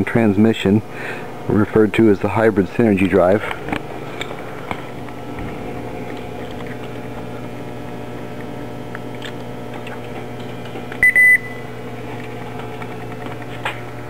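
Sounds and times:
steady low hum: 0.0s - 14.0s
car dash chime beeps: 11.0s - 11.6s.

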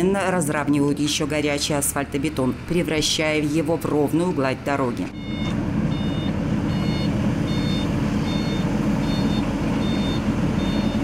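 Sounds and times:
road machinery engines rumbling: 0.0s - 11.0s
reversing alarm beeping: 5.1s - 11.0s.

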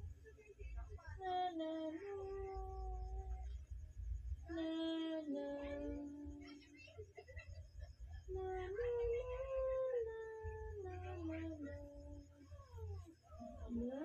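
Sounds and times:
woman humming a lullaby: 1.2s - 3.5s, 4.5s - 6.6s, 8.3s - 12.3s, 13.0s - 14.0s.

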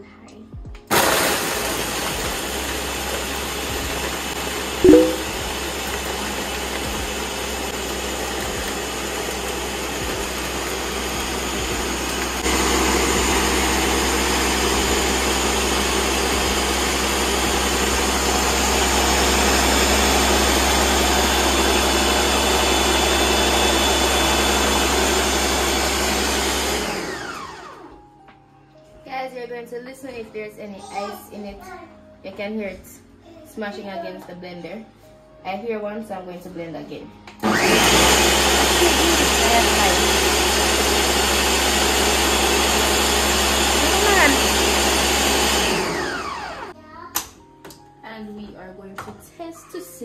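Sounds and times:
blender motor spinning down: 0.9s - 27.9s, 37.4s - 46.8s
blender blending ice: 0.9s - 28.0s, 37.4s - 46.8s
brief louder sound: 4.8s - 5.5s.

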